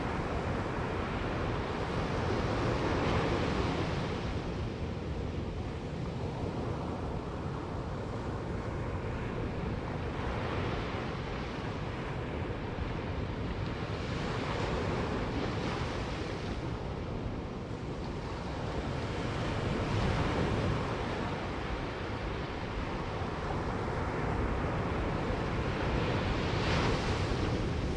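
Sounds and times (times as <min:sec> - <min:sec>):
wind rumbling on microphone: 0:00.0 - 0:27.9
waves breaking on sand beach: 0:05.6 - 0:27.9.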